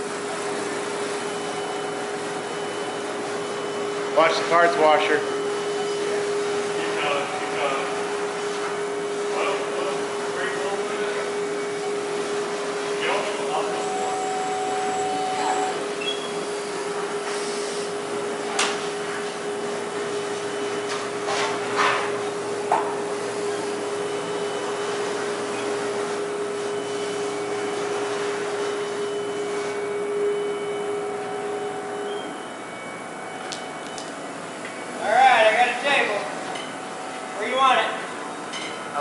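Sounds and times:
machine humming and hissing: 0.0s - 39.0s.

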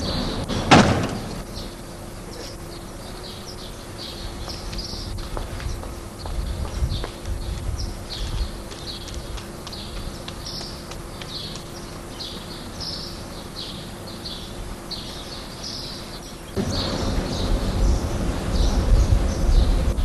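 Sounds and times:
outdoor background noise: 0.0s - 20.0s
small birds chirping: 1.2s - 20.0s
low rumbling noise: 16.5s - 20.0s.

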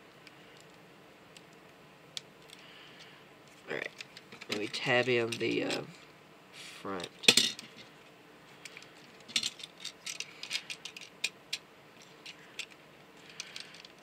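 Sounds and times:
plastic parts clicking and rattling: 3.5s - 6.0s, 7.0s - 7.9s, 8.6s - 14.0s.

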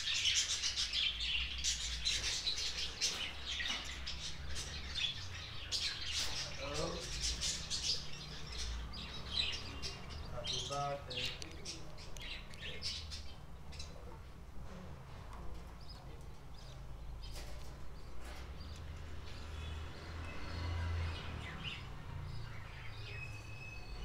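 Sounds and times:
budgerigars chirping and chattering: 0.0s - 24.0s.

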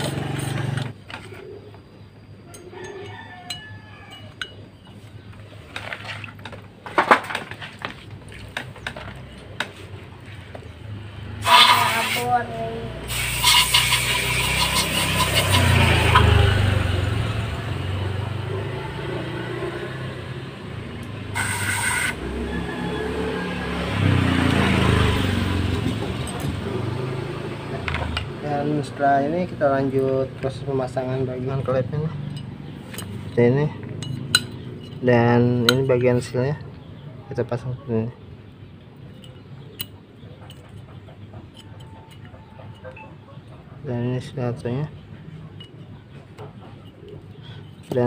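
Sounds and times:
motor vehicle engine running: 0.0s - 1.0s, 12.5s - 35.1s, 38.4s - 44.0s
metal engine parts clinking: 31.6s - 36.4s, 39.0s - 43.7s, 44.9s - 48.0s.

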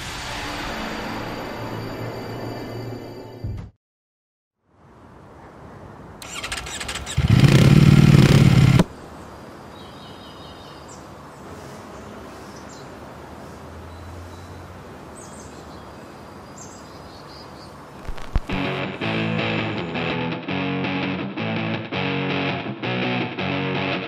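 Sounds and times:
loud low engine: 6.2s - 8.9s
small birds chirping: 8.9s - 17.9s.

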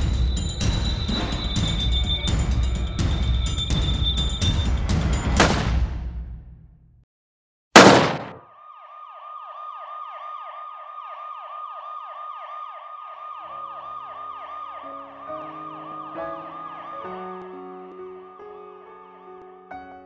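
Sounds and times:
loud bang: 7.8s - 8.4s
emergency siren wailing: 8.4s - 19.7s.

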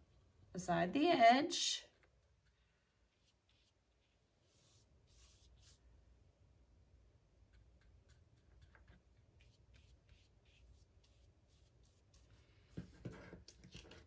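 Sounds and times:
paintbrush stroking paper: 2.1s - 5.8s, 7.5s - 13.9s.

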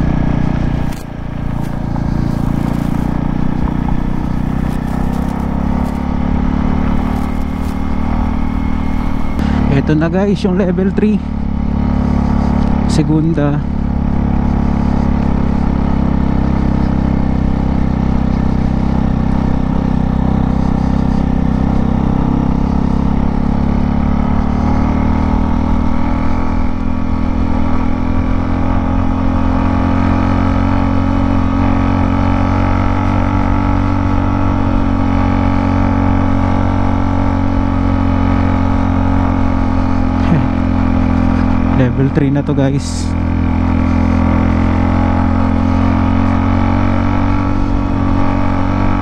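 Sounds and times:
motorcycle engine under load: 0.0s - 10.5s.

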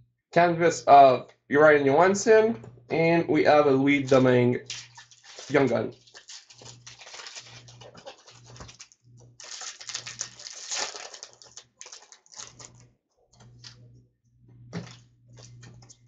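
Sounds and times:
trading cards rustling and clicking: 4.7s - 12.8s.

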